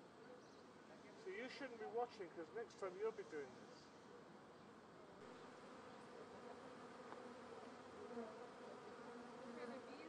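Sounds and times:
bee flying close by: 0:05.2 - 0:10.0
swarm of bees buzzing: 0:05.2 - 0:10.0.

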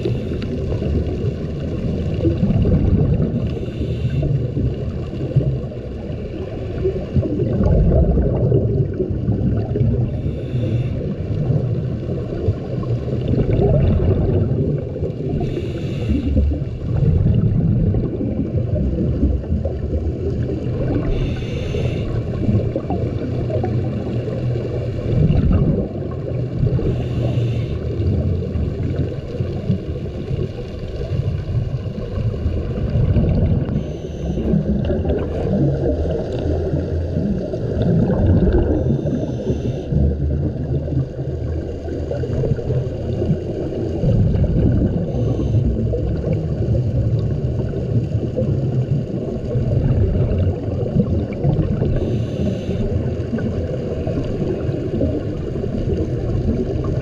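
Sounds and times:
underwater current rumble: 0:00.0 - 0:57.0
regulator breathing hiss: 0:03.5 - 0:04.5, 0:10.1 - 0:11.2, 0:15.4 - 0:16.4, 0:21.0 - 0:22.3, 0:26.8 - 0:28.0, 0:38.8 - 0:40.0, 0:52.0 - 0:52.9.

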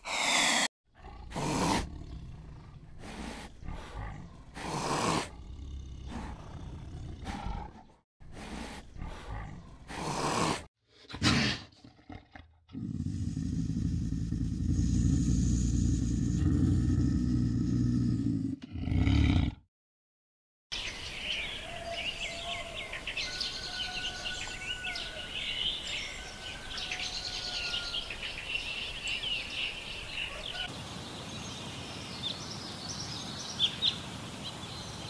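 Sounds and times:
lion roaring and grunting: 0:00.0 - 0:19.6.

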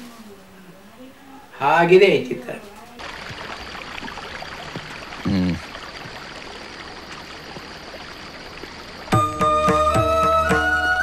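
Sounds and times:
running water rushing: 0:03.0 - 0:10.2.

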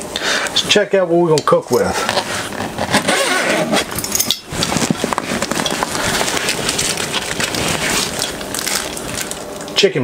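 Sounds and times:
hands rummaging through a cooler: 0:01.8 - 0:09.8
packaging rustling and crinkling: 0:01.8 - 0:09.9.

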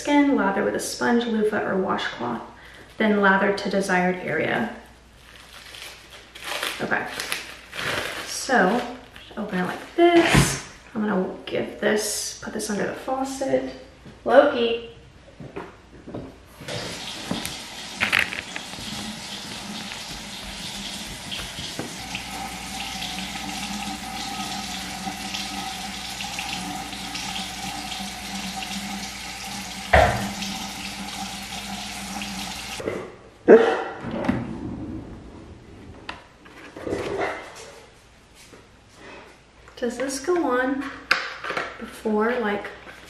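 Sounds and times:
faucet running: 0:16.7 - 0:32.8.

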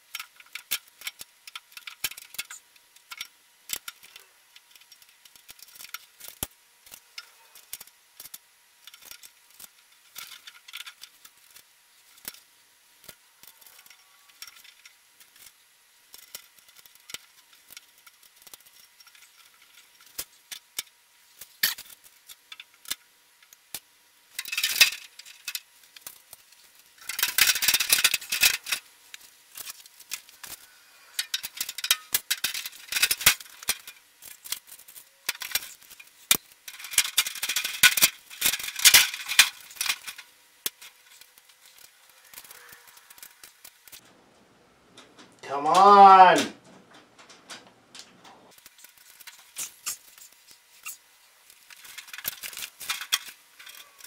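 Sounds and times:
rapid metal clicks and rattles: 0:00.0 - 0:30.6, 0:31.2 - 0:45.4, 0:46.6 - 0:54.0.

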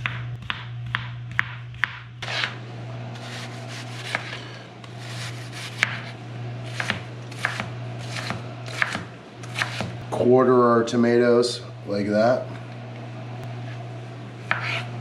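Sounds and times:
knife chopping on plastic board: 0:00.0 - 0:02.5, 0:05.2 - 0:06.1, 0:06.7 - 0:10.0, 0:14.4 - 0:14.9
knife slicing onion: 0:00.0 - 0:10.0, 0:13.5 - 0:15.0
steady low hum: 0:00.0 - 0:15.0.

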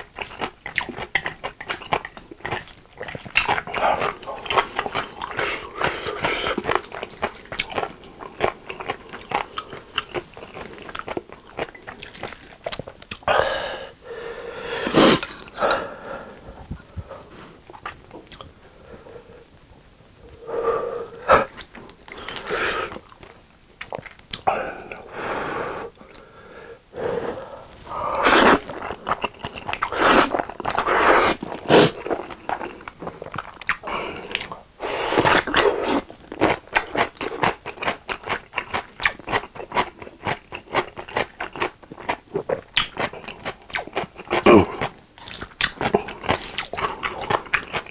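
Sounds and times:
wet chewing: 0:00.0 - 0:13.3, 0:17.7 - 0:18.5, 0:21.4 - 0:25.0, 0:27.8 - 0:47.9
noodle slurps: 0:27.8 - 0:29.0, 0:29.6 - 0:32.2.

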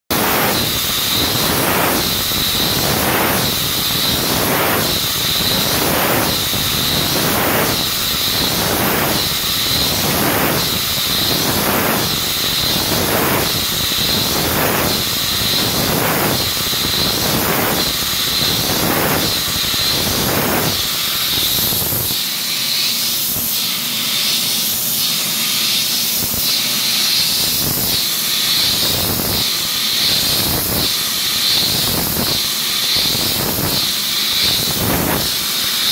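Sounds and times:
machine cutting strokes: 0:00.1 - 0:35.9
steady machine hiss: 0:00.1 - 0:35.9.

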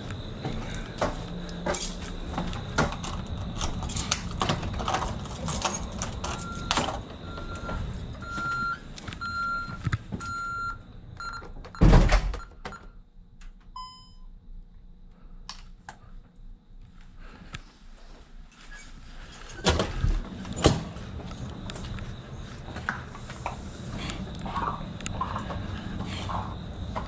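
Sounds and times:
keys jingling: 0:01.7 - 0:07.0
heavy door thudding shut: 0:11.8 - 0:12.4.

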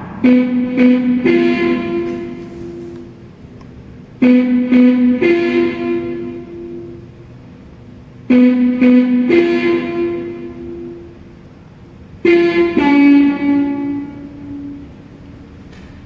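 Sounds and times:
electric guitar picking notes: 0:00.0 - 0:03.3, 0:04.2 - 0:07.3, 0:08.3 - 0:11.4, 0:12.2 - 0:15.5.

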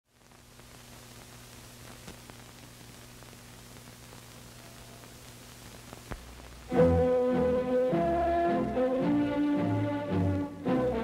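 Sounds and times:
steady film hiss: 0:00.0 - 0:11.0
faint clicks: 0:01.8 - 0:02.7.

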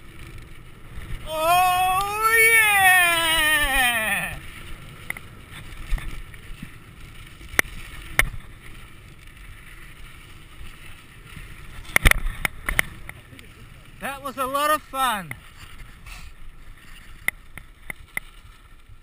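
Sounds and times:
wind noise: 0:00.0 - 0:09.7
tyres on dirt trail: 0:00.0 - 0:19.0
person shouting a whoop: 0:01.2 - 0:04.4.

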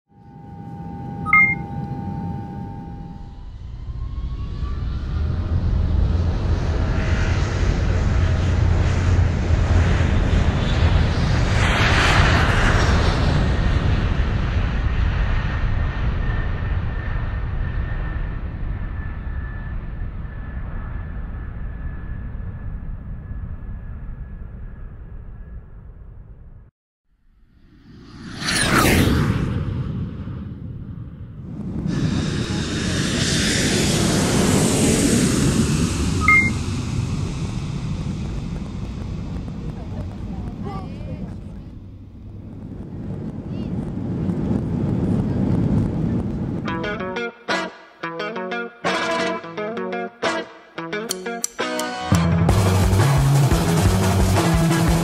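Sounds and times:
two-note electronic chime: 0:00.1 - 0:03.5, 0:36.2 - 0:36.6
faint steady whine: 0:00.1 - 0:03.7
jet engines roaring: 0:00.2 - 0:24.0, 0:28.0 - 0:47.7.

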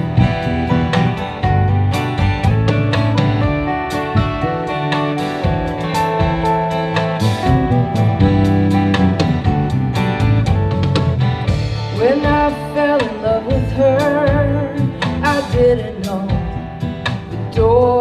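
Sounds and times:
bass guitar: 0:00.0 - 0:18.0
drum kit beat: 0:00.0 - 0:18.0
woman singing: 0:11.9 - 0:18.0.

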